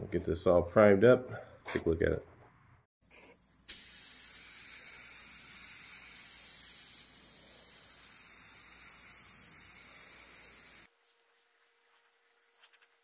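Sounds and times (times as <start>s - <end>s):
spray gun hissing: 3.7s - 10.9s.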